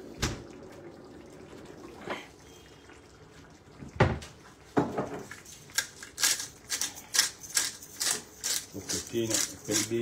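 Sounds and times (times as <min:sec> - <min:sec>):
sauce bubbling faintly: 0:00.0 - 0:07.1
cupboard knocks and clatter: 0:04.0 - 0:04.2.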